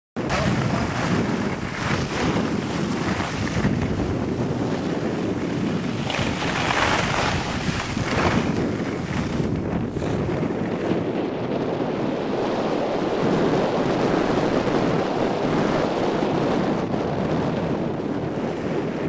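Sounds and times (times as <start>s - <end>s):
wind noise on microphone: 0.2s - 19.0s
skis sliding over snow: 0.3s - 10.8s.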